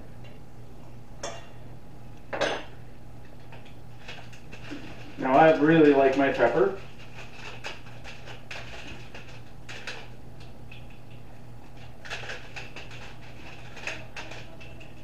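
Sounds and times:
pepper mill grinding: 0:10.7 - 0:15.0.

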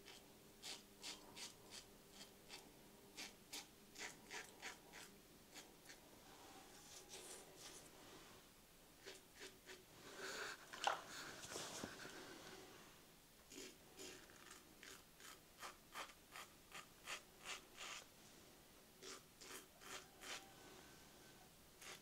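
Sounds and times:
razor scraping beard stubble: 0:00.1 - 0:02.6, 0:03.2 - 0:06.0, 0:09.0 - 0:09.8, 0:13.5 - 0:18.1, 0:19.0 - 0:20.5, 0:21.8 - 0:22.0.

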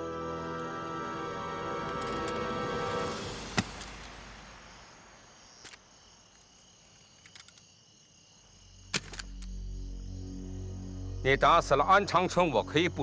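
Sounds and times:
low drone: 0:00.0 - 0:05.3
crickets chirping: 0:00.0 - 0:13.0.

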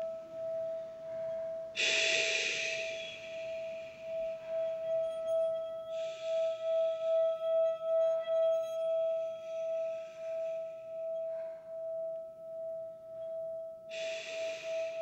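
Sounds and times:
sustained ringing tone: 0:00.0 - 0:15.0
short breathy hisses: 0:01.8 - 0:03.2.

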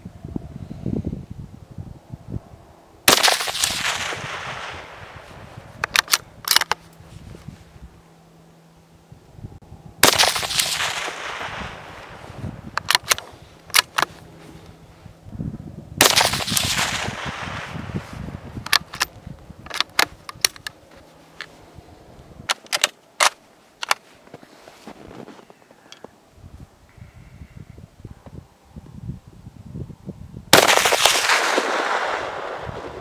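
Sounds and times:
rifle shots with echo: 0:03.1 - 0:05.2, 0:10.0 - 0:12.2, 0:16.0 - 0:17.9, 0:30.6 - 0:33.0
sharp clicks: 0:05.8 - 0:06.8, 0:12.8 - 0:14.1, 0:18.6 - 0:20.8.

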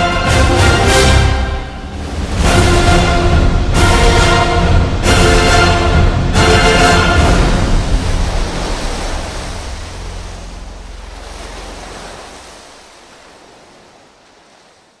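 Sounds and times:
waves washing onto stony shore: 0:06.7 - 0:15.0.

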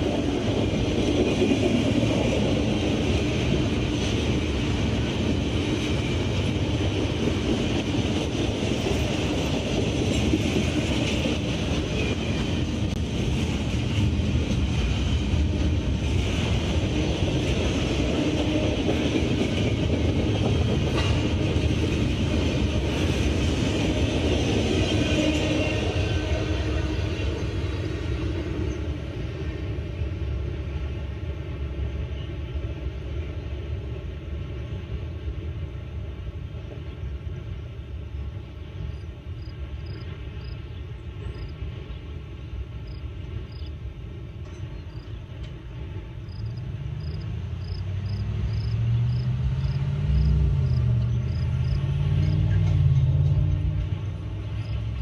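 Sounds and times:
freight train rumbling past: 0:00.0 - 0:55.0
insects chirping: 0:38.8 - 0:41.8, 0:42.7 - 0:43.8, 0:44.4 - 0:52.5, 0:54.0 - 0:55.0.

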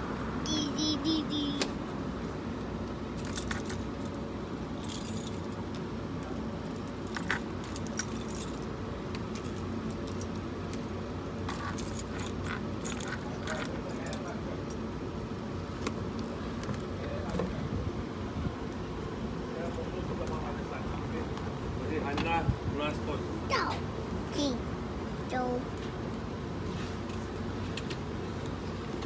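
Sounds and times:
keys jingling: 0:03.2 - 0:04.2, 0:04.8 - 0:05.6, 0:06.7 - 0:08.7, 0:11.5 - 0:14.8.

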